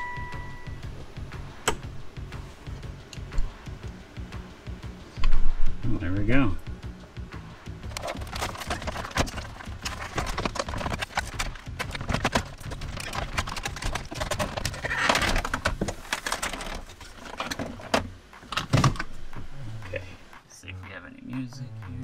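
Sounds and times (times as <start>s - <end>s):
hard plastic clicks and rattles: 7.9s - 19.0s.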